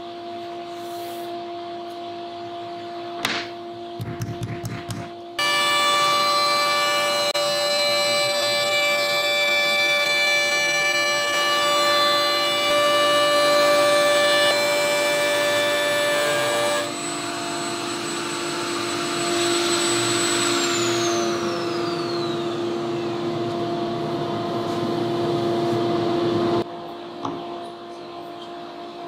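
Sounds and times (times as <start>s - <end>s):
router whining: 4.1s - 26.6s
router spinning down: 16.2s - 23.7s.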